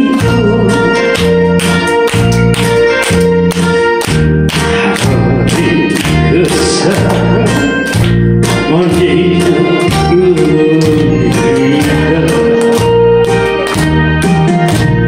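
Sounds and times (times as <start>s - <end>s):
man singing into a microphone: 0.0s - 1.2s, 4.7s - 7.9s, 8.6s - 12.9s
karaoke backing track with drums: 0.0s - 15.0s.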